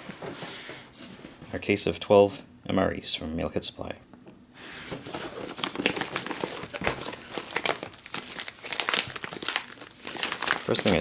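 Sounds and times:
plastic bags and cardboard crinkling: 0:04.9 - 0:11.0.

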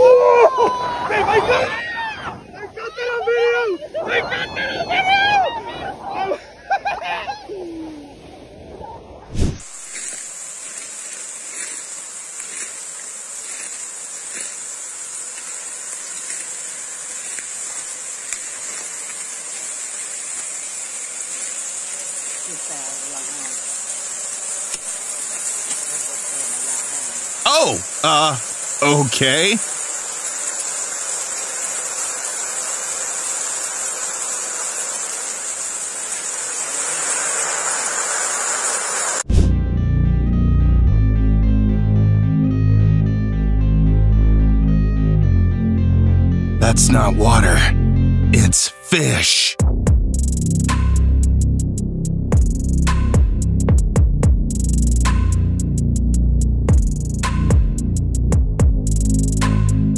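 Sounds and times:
forest insects buzzing: 0:09.6 - 0:39.3, 0:54.4 - 0:55.6, 0:56.8 - 0:58.2, 0:58.8 - 0:59.8
high-pressure water jet spraying: 0:09.6 - 0:39.3
music: 0:39.3 - 0:59.9.

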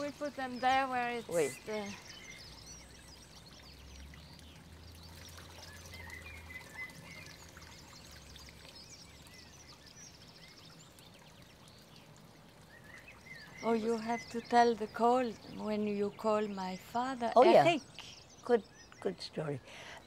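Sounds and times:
bird chirps: 0:00.0 - 0:20.0
pond fountain bubbling: 0:00.0 - 0:20.0.

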